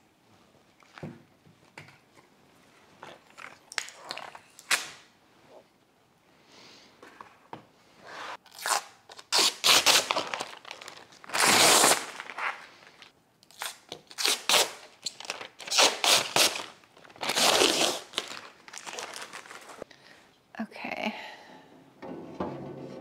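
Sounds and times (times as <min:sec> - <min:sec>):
plastic packaging rustling: 0:09.1 - 0:13.1, 0:15.0 - 0:19.9.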